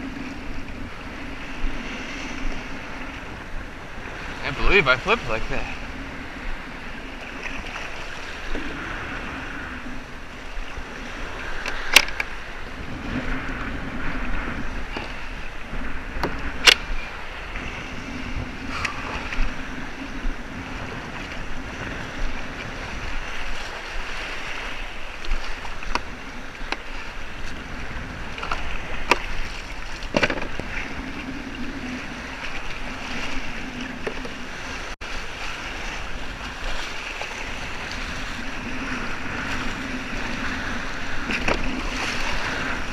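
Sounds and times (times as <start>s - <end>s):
wind on microphone: 0.0s - 42.9s
waves slapping against plastic hull: 21.0s - 42.9s.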